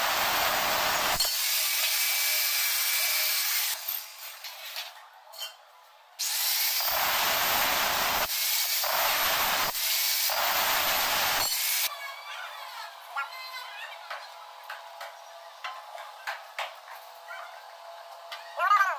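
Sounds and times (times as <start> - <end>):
angle grinder cutting steel: 0.0 - 4.6, 6.2 - 11.9.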